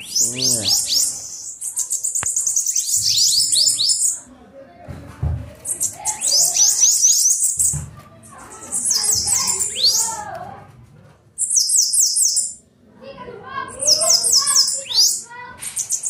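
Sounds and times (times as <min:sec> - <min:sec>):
bird singing high buzzy song: 0:00.0 - 0:04.2, 0:11.4 - 0:12.6, 0:13.7 - 0:16.0.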